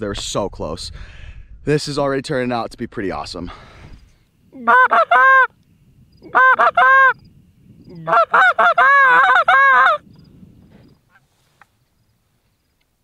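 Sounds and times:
goose honking: 4.6 - 5.5, 6.3 - 7.1, 8.0 - 10.0.

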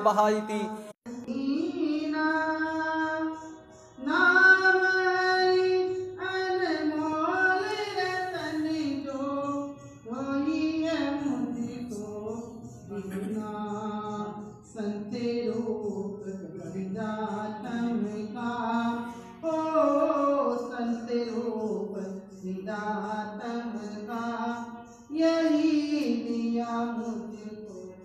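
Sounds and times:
woman singing devotional song: 1.1 - 28.0.

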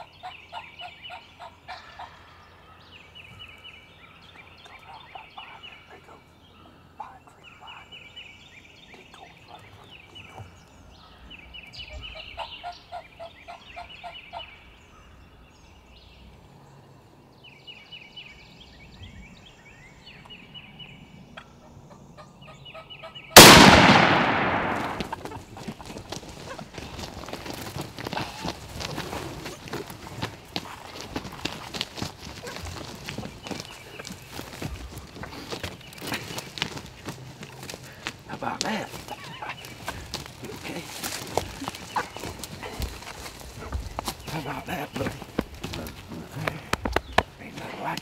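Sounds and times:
loud shotgun blast: 23.4 - 25.2.

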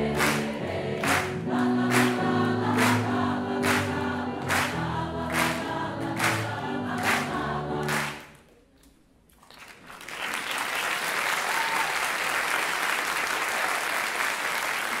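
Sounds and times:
choir with acoustic band: 0.0 - 8.3
audience applause: 0.1 - 5.6, 7.9 - 8.2, 9.5 - 15.0.

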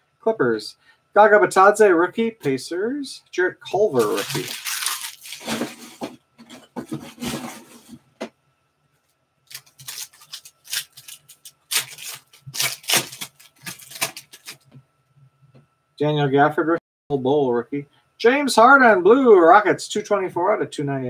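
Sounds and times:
foil wrapper crinkling and tearing: 3.9 - 6.0, 9.5 - 14.7.

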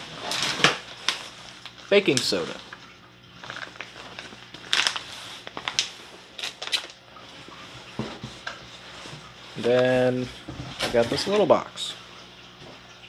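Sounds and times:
plastic bag crinkling: 0.2 - 9.9.

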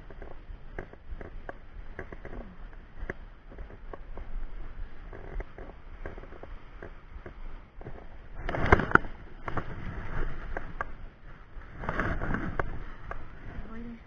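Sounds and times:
small clicks and knocks: 0.0 - 11.0.

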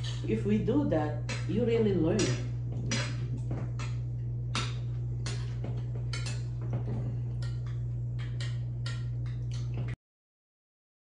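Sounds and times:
steady low hum: 0.0 - 10.0
spoons clinking against bowls: 4.6 - 6.6.

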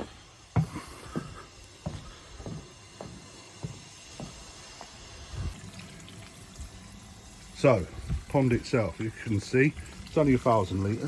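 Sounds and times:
footsteps walking: 0.0 - 5.6.

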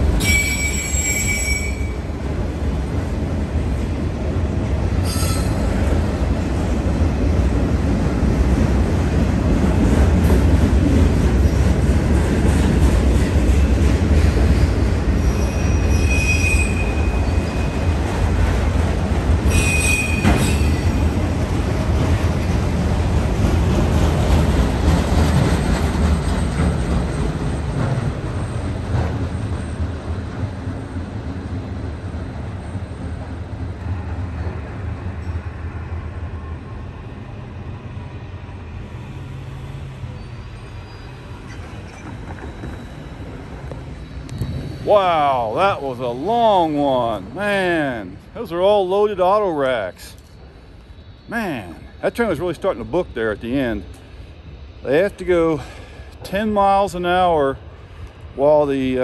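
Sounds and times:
train wheels rumbling on rails: 0.0 - 59.0
high wheel squeals: 0.2 - 2.1, 5.0 - 5.7, 14.5 - 18.0, 19.4 - 21.2, 39.0 - 46.7.

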